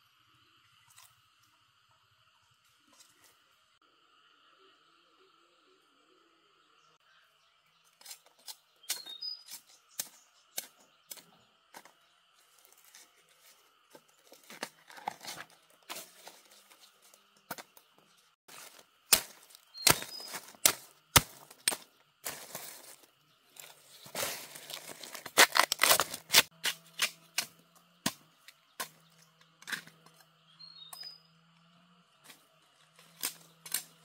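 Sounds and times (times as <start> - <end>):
sharp snaps and tearing: 24.7 - 27.5.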